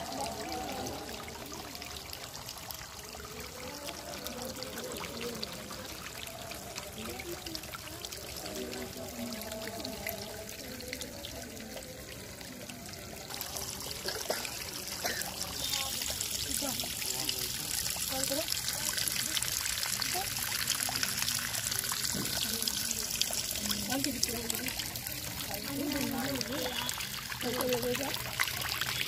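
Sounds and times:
water trickling: 0:00.0 - 0:29.0
water jet splashing: 0:13.3 - 0:29.0.

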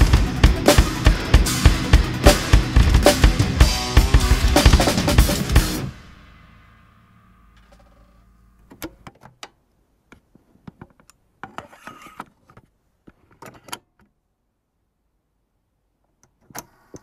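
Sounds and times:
drum kit ringing out: 0:00.0 - 0:08.6.

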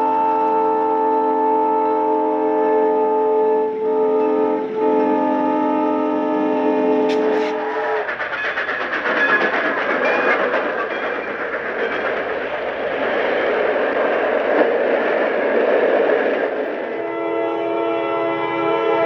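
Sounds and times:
model train wheels clicking on track: 0:07.0 - 0:17.0.

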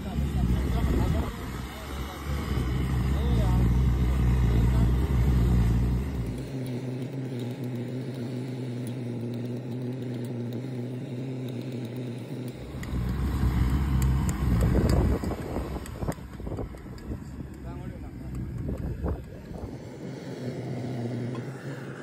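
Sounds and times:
engine idling: 0:00.0 - 0:22.0.

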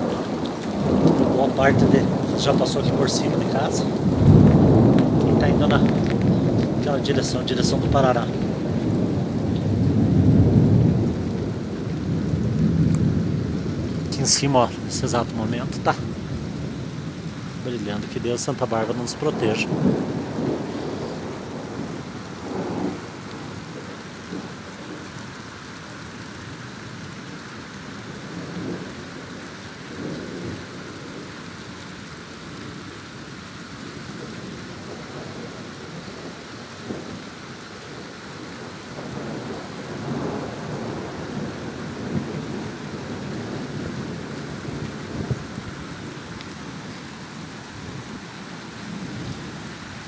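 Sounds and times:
thunder rumbling: 0:00.0 - 0:25.1, 0:38.9 - 0:50.0
rain hissing: 0:00.0 - 0:50.0.

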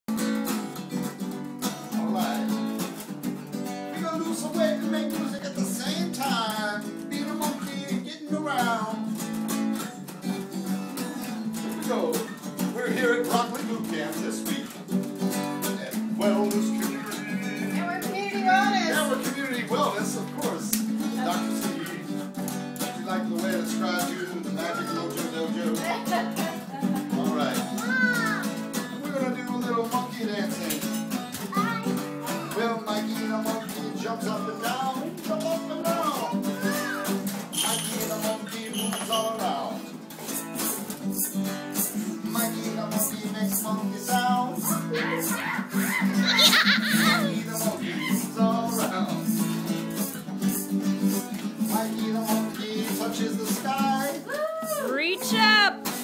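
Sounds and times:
acoustic guitar strumming: 0:00.1 - 0:56.0
person singing: 0:03.9 - 0:09.1, 0:15.7 - 0:28.1, 0:29.0 - 0:39.8, 0:41.2 - 0:49.6, 0:50.5 - 0:56.0.

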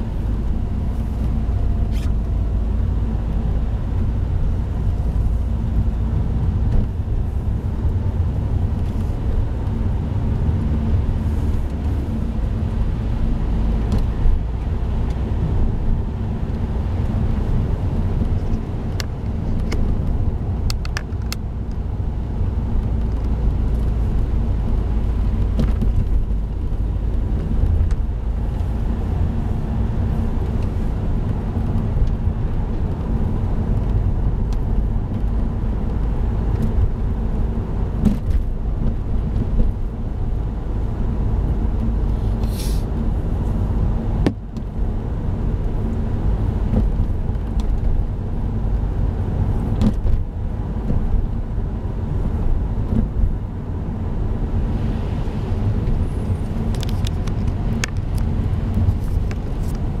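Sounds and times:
engine and tyres rumbling: 0:00.0 - 1:00.0
brief hiss: 0:42.2 - 0:42.9.

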